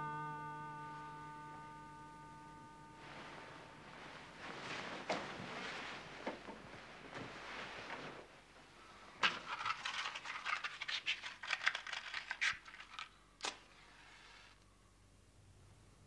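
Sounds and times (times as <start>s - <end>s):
matchbox rattling and clicking: 9.2s - 13.6s.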